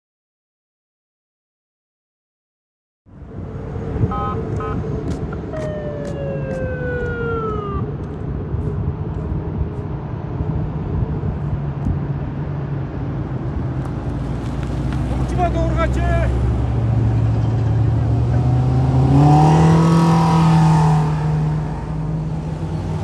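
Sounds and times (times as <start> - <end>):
road traffic: 3.1 - 23.0
police siren chirps and wail: 3.4 - 9.8.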